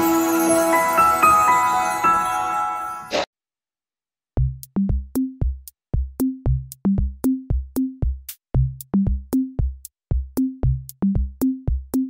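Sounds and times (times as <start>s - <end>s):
background music with steady beat: 4.4s - 12.0s.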